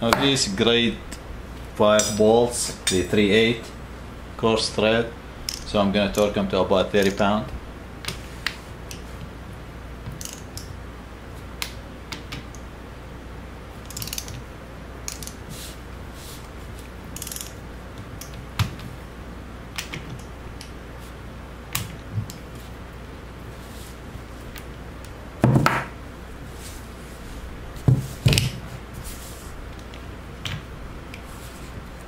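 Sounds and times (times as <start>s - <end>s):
ratchet wrench clicking: 10.2s - 10.7s, 13.9s - 14.4s, 17.2s - 17.6s
sharp wrench clicks on metal: 10.2s - 10.7s, 13.8s - 14.4s, 17.2s - 17.6s.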